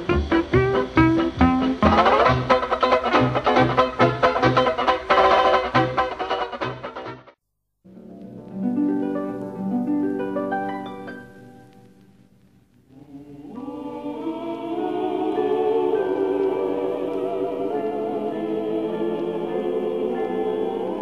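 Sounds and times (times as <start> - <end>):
choir singing long notes: 0.0 - 6.6, 12.9 - 21.0.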